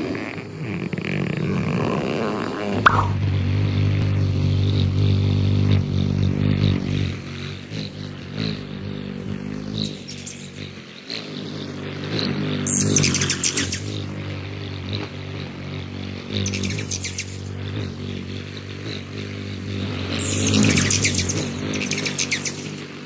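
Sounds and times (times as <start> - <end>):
hummingbird wings humming: 0.1 - 23.0
faint high chirps: 2.8 - 3.2, 9.8 - 10.7, 20.2 - 22.8.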